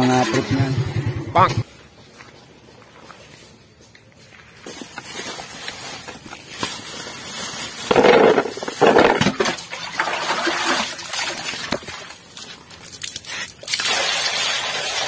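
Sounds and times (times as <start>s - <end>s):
plastic bag crinkling: 4.6s - 9.5s
fruits knocking in a basin: 7.9s - 9.6s.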